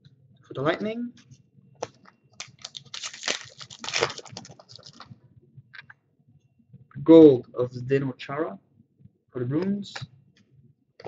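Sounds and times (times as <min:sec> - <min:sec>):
cards clicking: 0:01.8 - 0:05.0
foil wrappers crinkling: 0:02.4 - 0:05.1.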